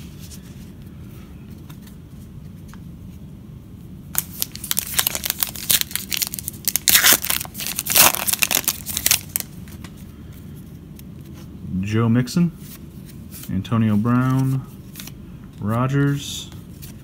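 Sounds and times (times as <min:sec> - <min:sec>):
card pack wrapper crinkling and tearing: 0:04.1 - 0:09.6.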